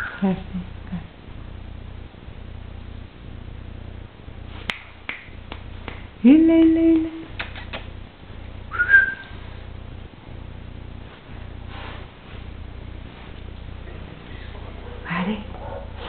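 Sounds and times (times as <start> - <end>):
sharp clicks: 7.3 - 7.9.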